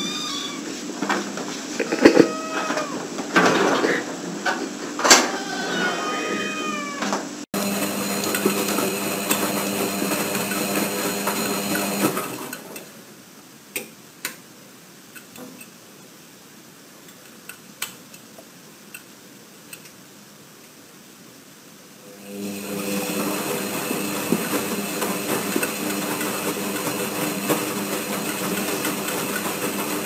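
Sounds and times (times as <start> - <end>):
cats meowing: 0.0 - 0.8, 1.8 - 3.1, 5.1 - 7.2.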